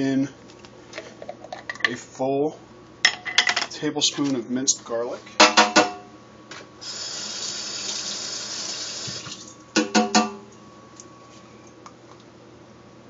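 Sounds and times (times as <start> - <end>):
water running from tap: 6.8 - 9.6.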